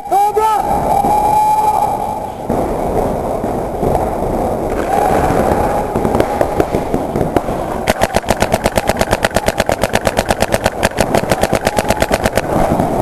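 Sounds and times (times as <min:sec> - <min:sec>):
paintball marker rapid firing: 0:06.0 - 0:13.0.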